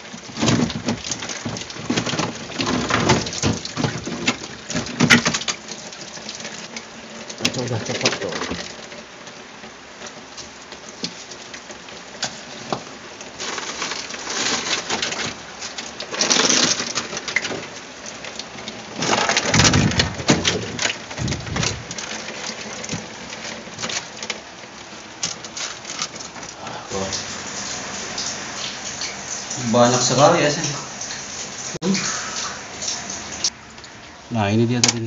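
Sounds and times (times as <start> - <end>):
water pattering and splashing: 0.0 - 34.2
ice clicks and knocks: 12.6 - 17.7, 18.4 - 24.4.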